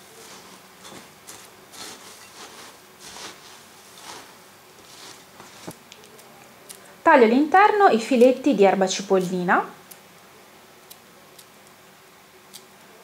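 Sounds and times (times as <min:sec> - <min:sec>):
spatula stirring bread in a bowl: 0:00.0 - 0:05.8.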